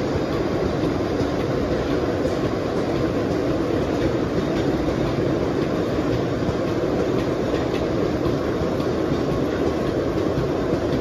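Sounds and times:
steel wheels rumbling on rail: 0:00.0 - 0:11.0
rail joint clicks: 0:00.1 - 0:11.0.

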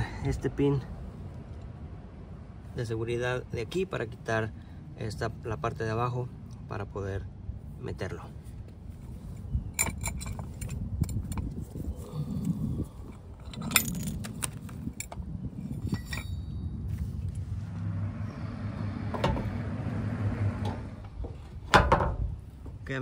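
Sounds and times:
steady low rumble: 0:00.0 - 0:23.0
metal clinking and rattling: 0:09.3 - 0:11.6, 0:13.0 - 0:16.8.

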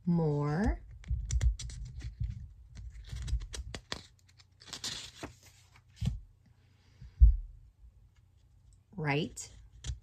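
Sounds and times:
paper cards clicking and tapping: 0:00.5 - 0:06.2, 0:09.5 - 0:10.0
paper rustling: 0:00.9 - 0:06.2.

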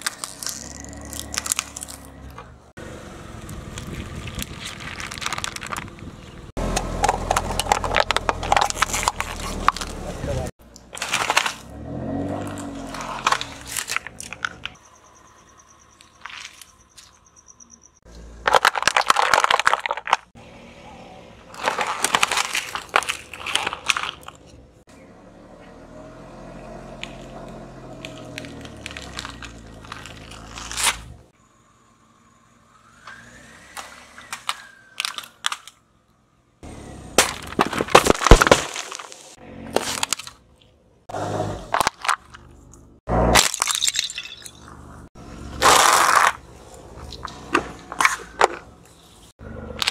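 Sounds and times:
car tyre crushing objects: 0:00.0 - 0:02.7, 0:03.4 - 0:17.4, 0:18.0 - 0:20.6, 0:21.4 - 0:24.8, 0:26.0 - 0:31.4, 0:32.9 - 0:49.9.

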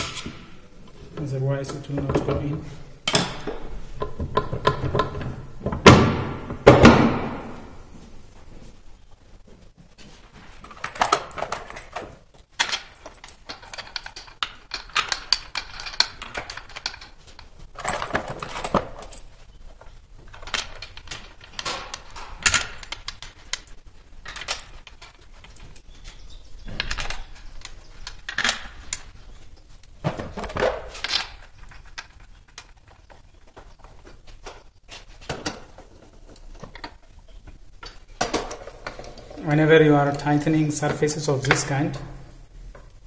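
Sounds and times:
steel bolts clinking and rattling: 0:01.6 - 0:05.9, 0:10.6 - 0:29.3, 0:30.0 - 0:34.6.

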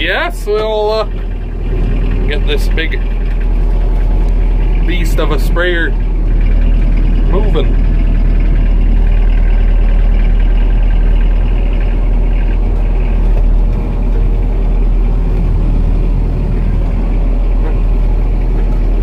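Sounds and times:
diesel engine low rumble: 0:00.0 - 0:19.0.

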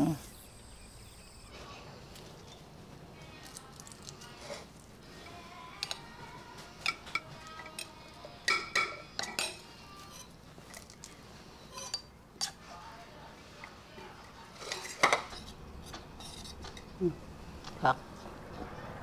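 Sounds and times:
spoon clinking on ceramic plates: 0:06.8 - 0:10.3, 0:11.7 - 0:12.6.

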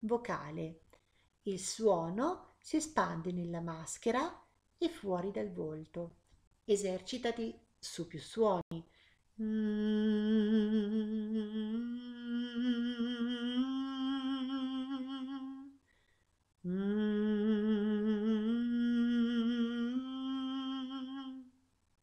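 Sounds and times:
person humming with vibrato: 0:09.4 - 0:15.7, 0:16.6 - 0:21.6.

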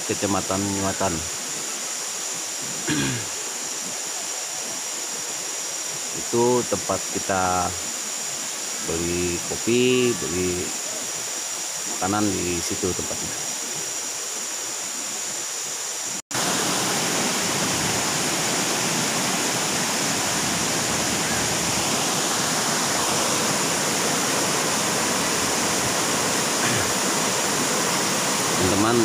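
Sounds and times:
quiet outdoor hiss: 0:00.0 - 0:29.0
river rushing over stones: 0:00.0 - 0:29.0.

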